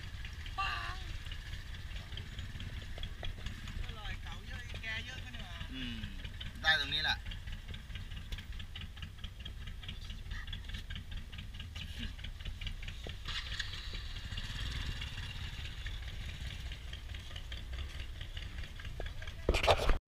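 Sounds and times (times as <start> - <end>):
engine idling with low rumble: 0.0 - 20.0
fast regular engine ticking: 0.0 - 20.0.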